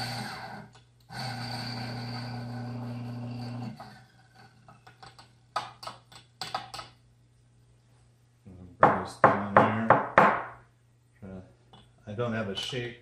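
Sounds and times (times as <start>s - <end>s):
coffee grinder grinding beans: 0.0s - 4.6s.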